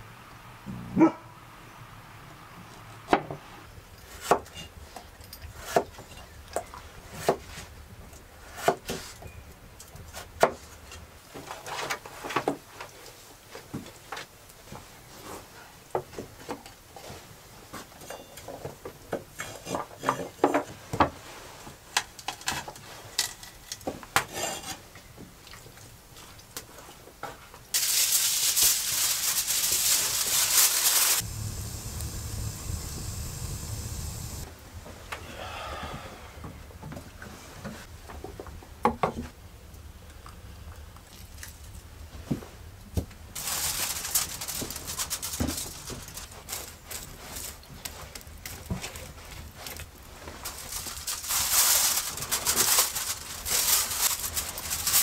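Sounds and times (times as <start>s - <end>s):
loud steady hiss: 27.8s - 34.5s
wood fire rumbling in stove: 30.1s - 34.5s.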